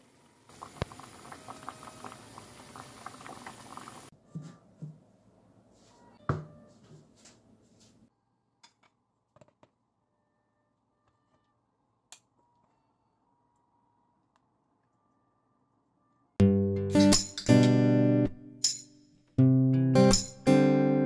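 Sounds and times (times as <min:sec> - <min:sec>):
broth bubbling at a boil: 0:00.0 - 0:04.1.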